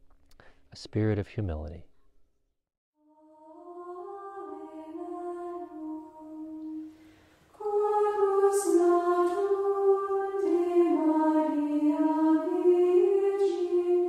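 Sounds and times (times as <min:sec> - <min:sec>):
women's choir singing: 0:03.1 - 0:14.0.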